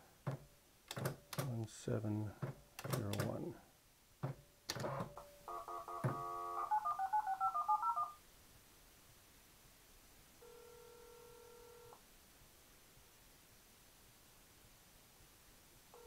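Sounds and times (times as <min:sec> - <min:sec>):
touch-tone dialing: 0:05.5 - 0:08.2.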